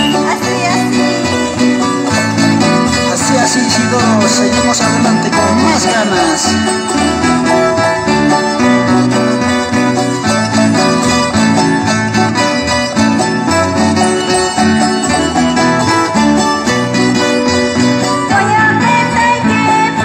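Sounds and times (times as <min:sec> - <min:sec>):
strummed small guitars dance tune: 0:00.0 - 0:20.0.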